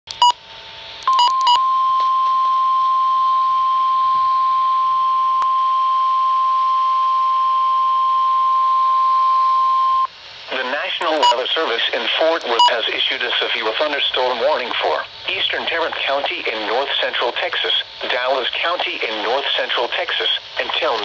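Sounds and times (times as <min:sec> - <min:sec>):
short beeps: 0:01.1 - 0:10.1.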